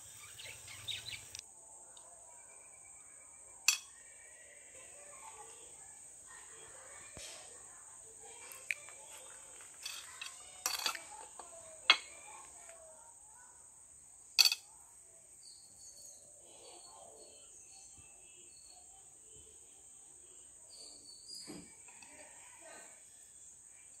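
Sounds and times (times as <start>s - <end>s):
crickets droning: 0.0s - 24.0s
spoons clinking on plates: 3.7s - 4.0s, 9.4s - 12.2s, 14.4s - 14.6s.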